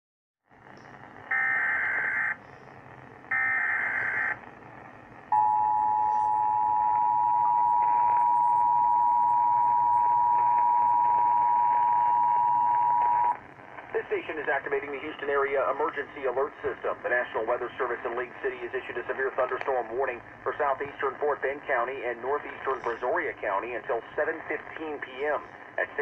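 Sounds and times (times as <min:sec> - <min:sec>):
two-tone attention signal: 0:05.4 - 0:13.4.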